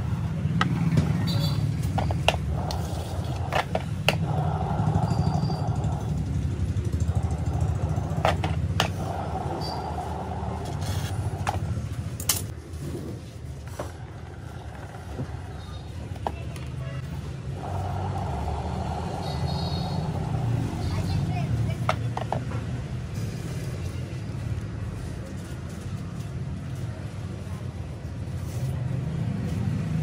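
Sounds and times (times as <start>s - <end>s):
low motor hum: 0.0s - 12.4s, 13.6s - 21.4s.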